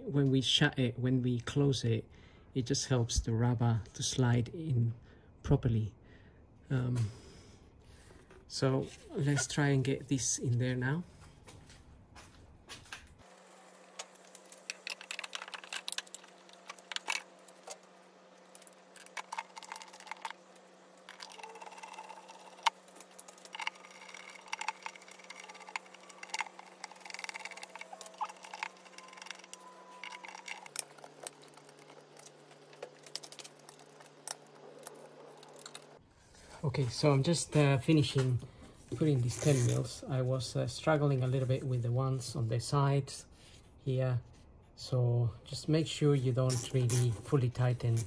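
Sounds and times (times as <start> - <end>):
faint steady hum: 0.0 - 48.0.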